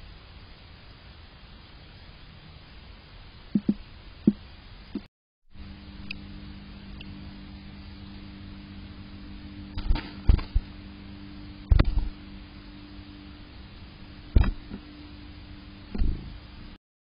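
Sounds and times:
steady low hum: 0:00.0 - 0:16.8
wings fluttering: 0:09.7 - 0:10.8.

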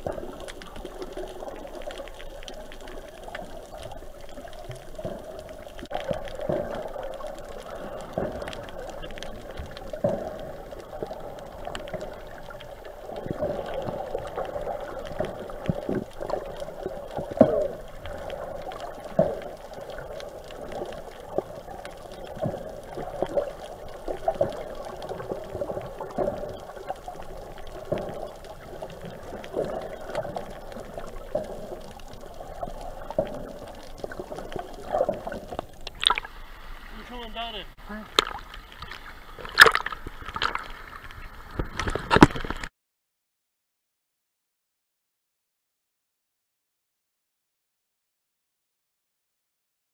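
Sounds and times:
muffled underwater sloshing: 0:00.0 - 0:42.7.

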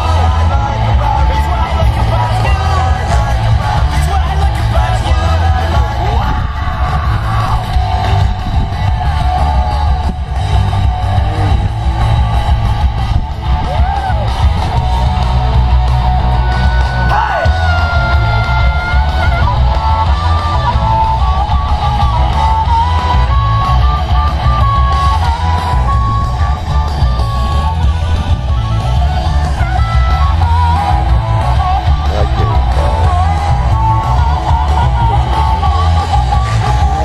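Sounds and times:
loud rock music: 0:00.0 - 0:37.0.

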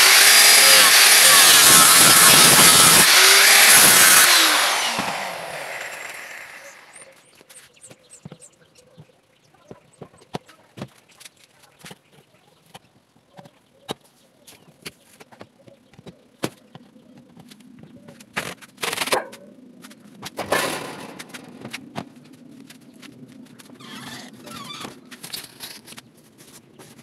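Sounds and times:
angle grinder cutting sheet metal: 0:00.0 - 0:07.2.

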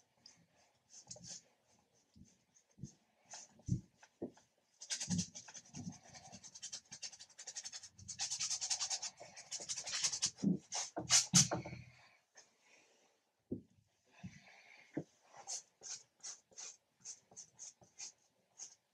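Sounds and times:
brush scrubbing on canvas: 0:15.2 - 0:18.8.

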